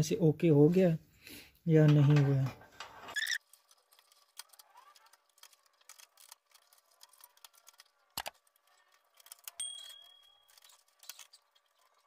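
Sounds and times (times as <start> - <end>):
small clicks and taps of parts: 3.6 - 12.0.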